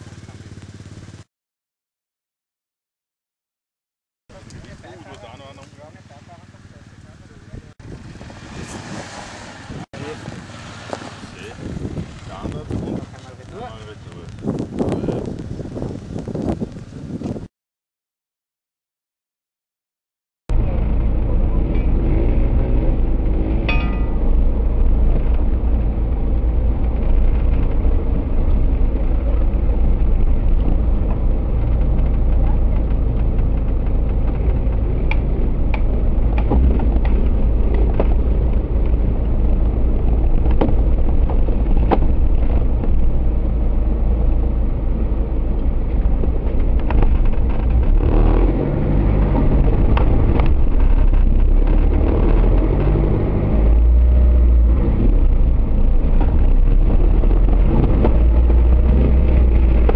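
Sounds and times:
car engine rumbling: 4.3s - 17.5s, 20.5s - 59.9s
sharp clicks and knocks: 30.5s - 43.1s, 45.5s - 48.3s, 49.1s - 53.1s, 56.0s - 59.9s.

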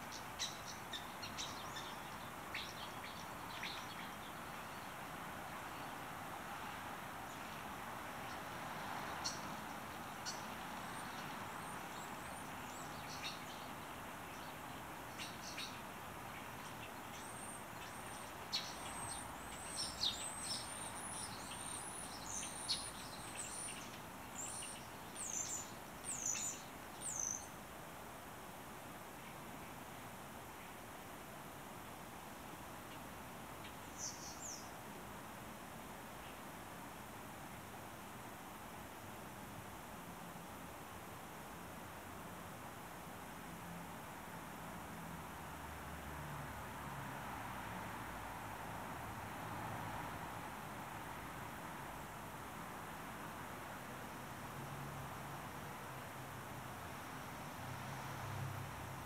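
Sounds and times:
small birds chirping: 0.0s - 27.6s, 32.9s - 34.8s
steady background hiss: 0.0s - 59.0s.

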